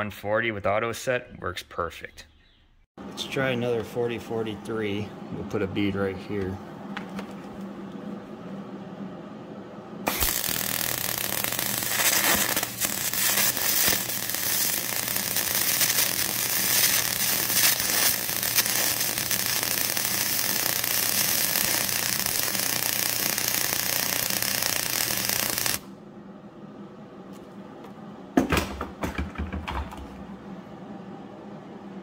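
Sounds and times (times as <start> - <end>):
welding arc crackling hiss: 10.1 - 25.9.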